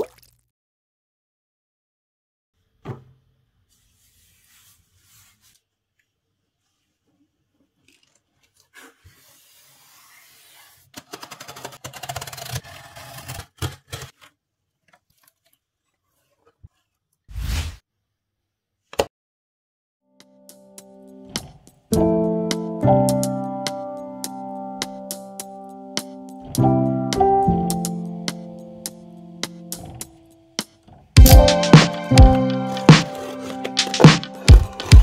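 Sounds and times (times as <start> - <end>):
packing tape ripping off cardboard: 7.9 - 14.3
cardboard box rubbing and scraping: 8.7 - 14.2, 32.8 - 35.0.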